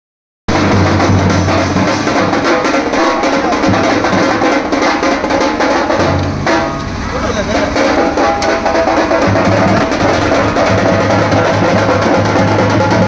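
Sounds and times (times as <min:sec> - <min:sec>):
deep barrel drum beat: 0:00.5 - 0:13.0
fast tasha drum strokes: 0:00.5 - 0:13.0.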